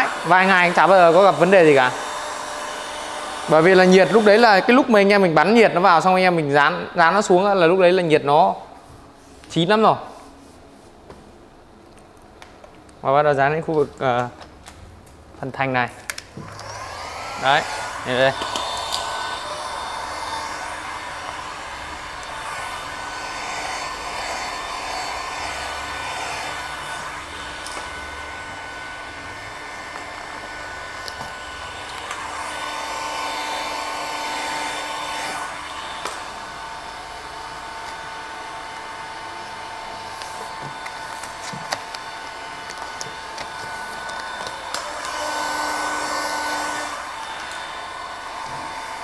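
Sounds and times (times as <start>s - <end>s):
heat gun blowing hot air: 0.0s - 4.7s, 16.2s - 49.0s.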